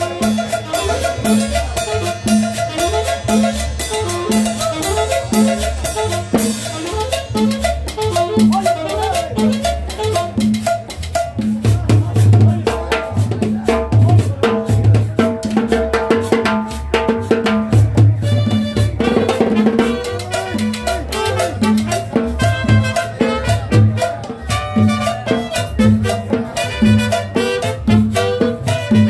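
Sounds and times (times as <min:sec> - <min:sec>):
saxophone: 0:00.0 - 0:11.3, 0:18.2 - 0:29.0
drums and percussion: 0:00.0 - 0:29.0
loud melody line: 0:00.0 - 0:29.0
upright bass plucking: 0:00.0 - 0:29.0.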